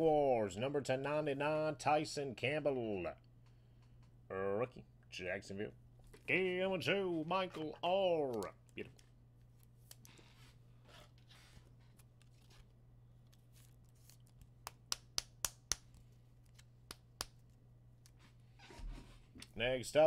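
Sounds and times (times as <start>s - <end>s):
low steady hum: 0.0s - 20.0s
cards sliding and rustling: 9.5s - 14.5s.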